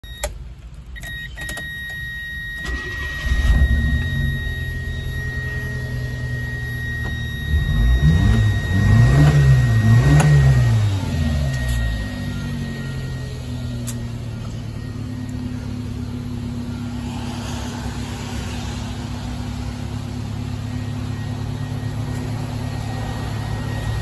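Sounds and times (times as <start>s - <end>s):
engine starting and revving: 2.6s - 6.6s, 7.2s - 12.8s.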